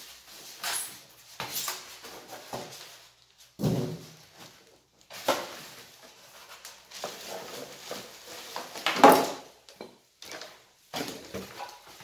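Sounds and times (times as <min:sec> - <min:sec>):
plastic bag rustling: 0:00.0 - 0:09.6.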